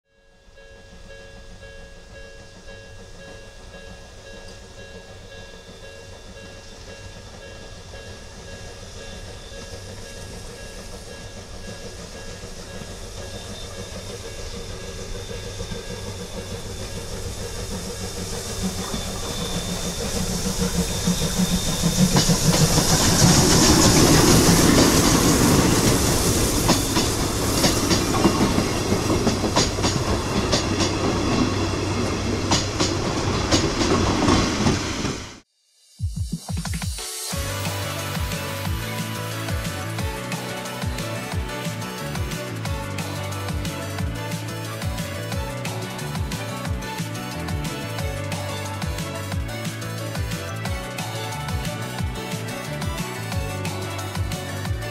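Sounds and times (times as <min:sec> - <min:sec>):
steam locomotive passing: 0:00.2 - 0:35.5, 0:37.0 - 0:54.9
train wheels clicking over rail joints: 0:00.8 - 0:35.4.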